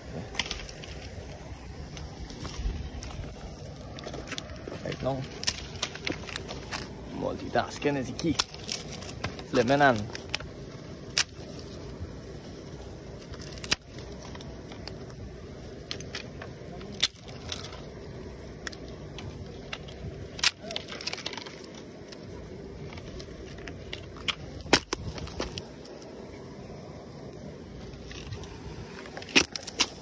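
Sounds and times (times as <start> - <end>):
campfire crackling: 0.0 - 30.0
sharp wood snaps: 0.3 - 1.2, 3.9 - 6.9, 8.2 - 11.7, 13.3 - 15.1, 15.8 - 17.8, 19.6 - 22.2, 23.0 - 26.0, 29.1 - 30.0.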